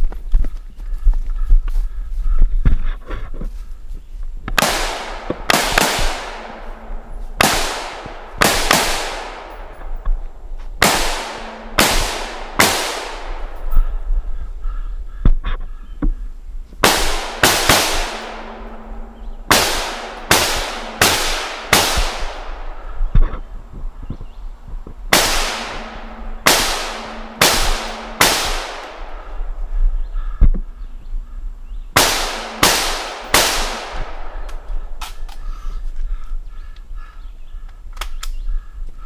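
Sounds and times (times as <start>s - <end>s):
rifle shots with echo: 4.6s - 14.4s, 16.8s - 23.4s, 25.1s - 30.4s, 32.0s - 35.5s.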